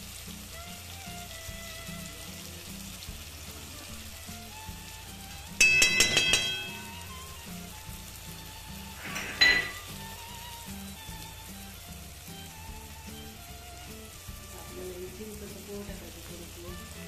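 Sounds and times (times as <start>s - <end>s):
background music: 0.0s - 17.0s
food frying in a pan: 0.0s - 17.0s
metal utensil clattering on pan: 5.6s - 7.2s, 9.0s - 10.0s.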